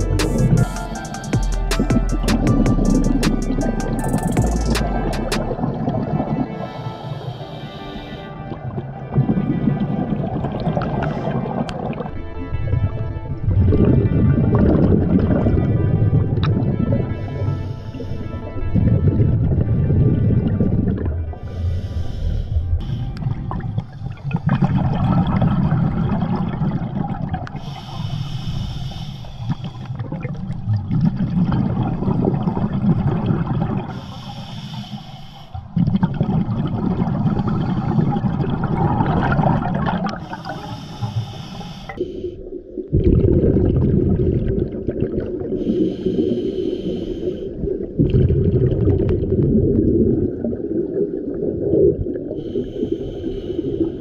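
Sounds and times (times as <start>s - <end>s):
regulator inhalation hiss: 0.0s - 1.9s, 6.8s - 8.2s, 21.5s - 23.2s, 27.6s - 29.9s, 33.9s - 35.6s, 40.2s - 42.4s, 45.6s - 47.5s, 52.4s - 54.0s
exhaled bubbles rumbling: 1.7s - 6.8s, 8.3s - 27.7s, 29.4s - 34.0s, 35.6s - 41.2s, 41.9s - 45.9s, 47.4s - 52.8s.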